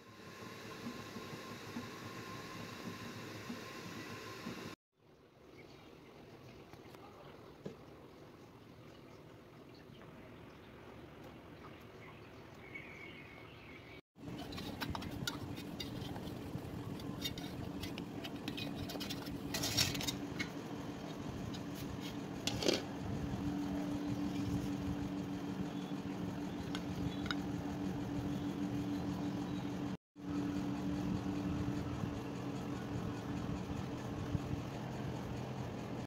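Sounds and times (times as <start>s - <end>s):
steady low hum: 14.2s - 36.0s.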